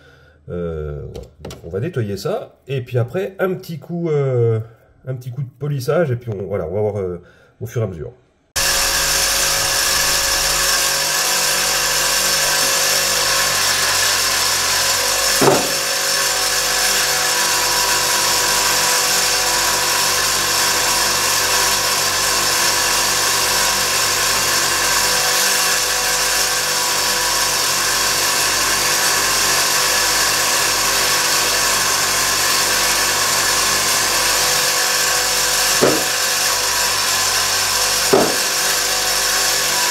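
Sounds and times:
polishing tool running: 8.6 - 39.9.

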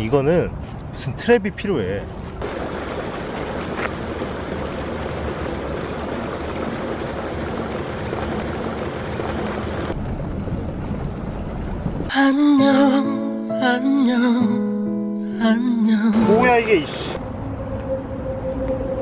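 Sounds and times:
propeller wash churning water: 2.4 - 10.0
music: 12.1 - 19.0.

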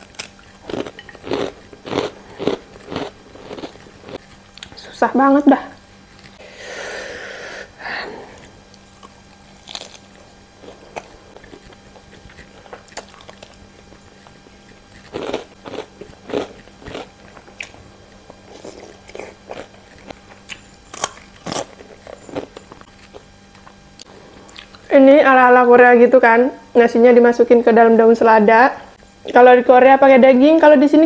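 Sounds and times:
person chewing crunchy food: 0.0 - 4.8, 8.2 - 24.9.

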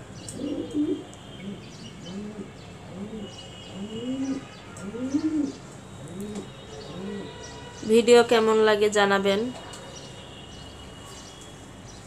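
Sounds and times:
pigeon cooing: 0.4 - 7.3.

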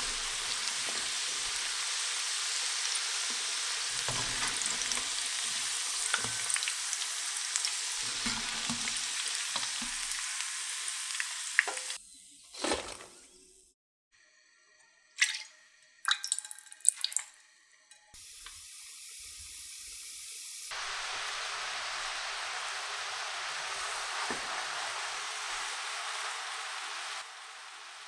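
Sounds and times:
sauce boiling and sizzling in a pan: 0.0 - 12.0, 18.1 - 28.0.

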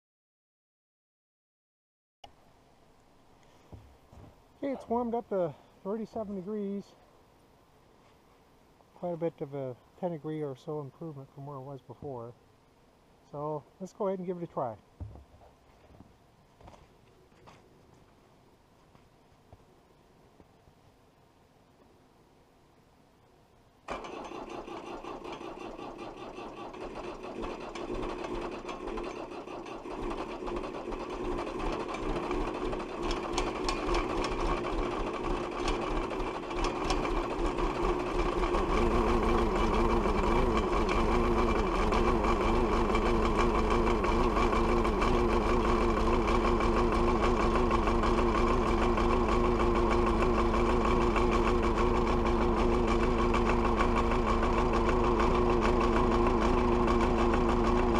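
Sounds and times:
diesel engine cranking and starting: 23.9 - 57.9
diesel engine idling: 23.9 - 57.9.

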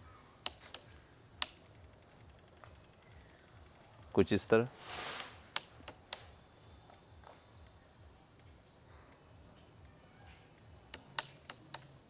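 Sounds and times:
sharp clicks: 0.0 - 3.3, 4.8 - 7.3, 8.4 - 12.0
crickets chirping: 0.0 - 12.0.

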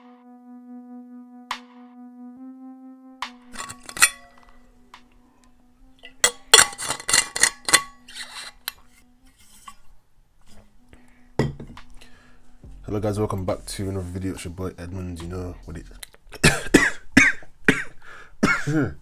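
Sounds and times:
held music tone: 0.0 - 16.0
metal bottle lid clinking: 3.5 - 4.6, 6.0 - 8.8, 11.4 - 11.9.

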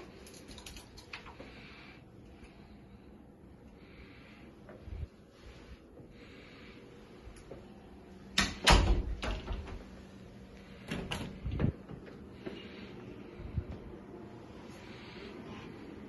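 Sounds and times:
closet door clunking shut: 8.4 - 9.8.

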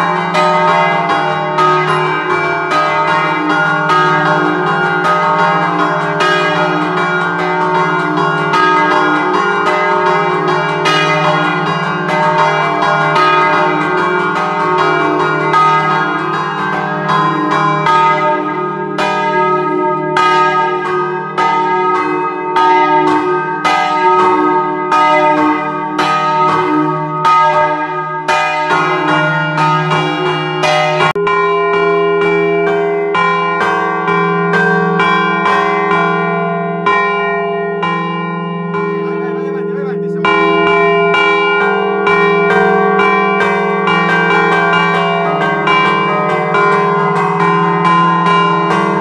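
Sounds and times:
church bells chiming: 0.0 - 49.0.

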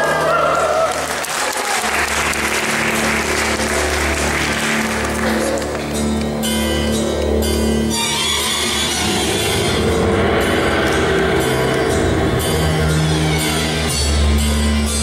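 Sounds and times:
audience applause: 0.0 - 6.2
backing music with bass: 2.1 - 15.0.

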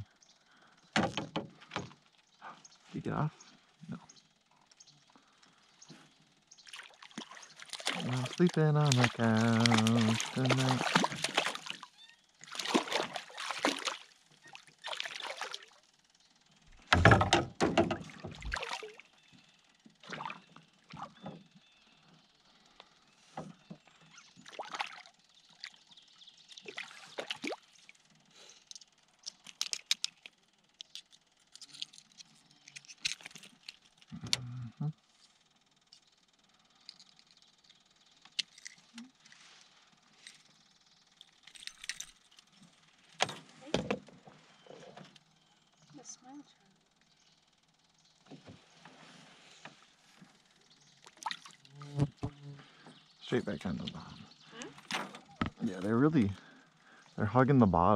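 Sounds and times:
water splashing against canoe: 6.7 - 15.8, 16.9 - 19.0.

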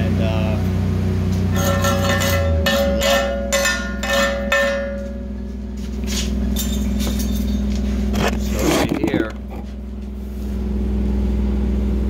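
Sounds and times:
low machine hum: 0.0 - 12.0
hammer ringing on steel plate: 1.5 - 5.6.

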